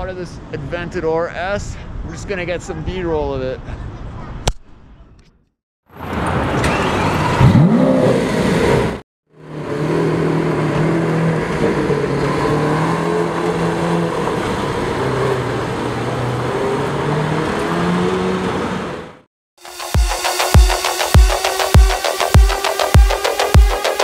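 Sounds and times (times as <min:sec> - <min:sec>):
car engine revving: 0:06.4 - 0:24.0.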